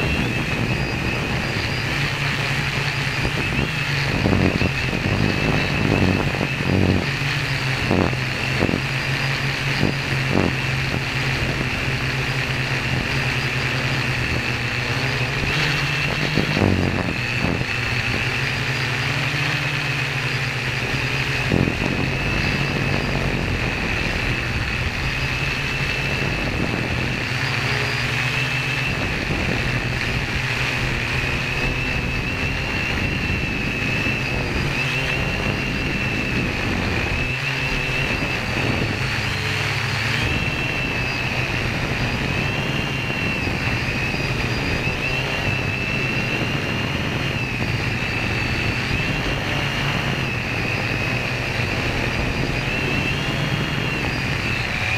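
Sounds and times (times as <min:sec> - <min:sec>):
constant low rumble: 0:00.0 - 0:54.9
drone propellers whining: 0:00.0 - 0:54.9.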